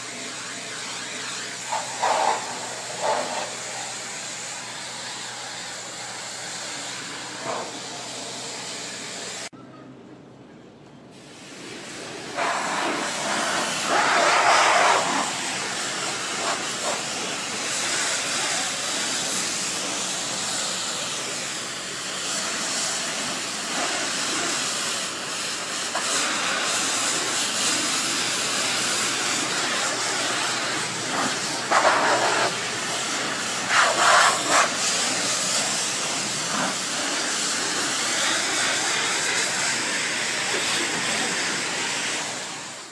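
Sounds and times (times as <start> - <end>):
pressure washer spraying water: 0.0 - 9.5, 11.2 - 42.9.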